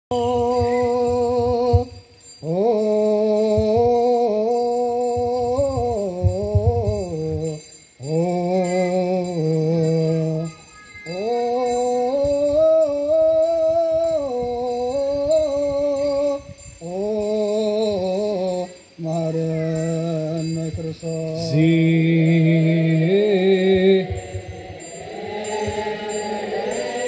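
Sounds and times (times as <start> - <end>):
man chanting: 0.1 - 27.0.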